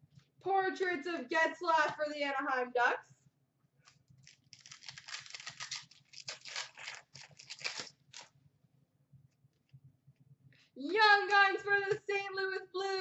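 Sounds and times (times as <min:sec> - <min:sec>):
plastic wrapper tearing and crinkling: 0:04.2 - 0:08.3.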